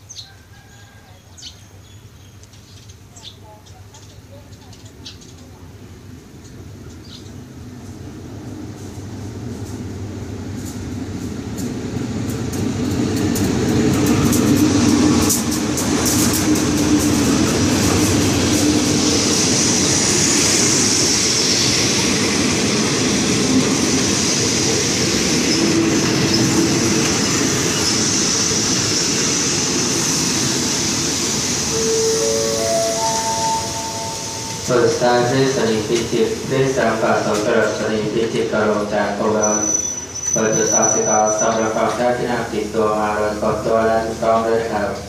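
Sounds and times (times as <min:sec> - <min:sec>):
diesel train rumbling: 0:01.4 - 0:45.0
train wheel clicks: 0:10.5 - 0:19.0
high hiss of train braking: 0:14.0 - 0:37.5, 0:39.2 - 0:42.0.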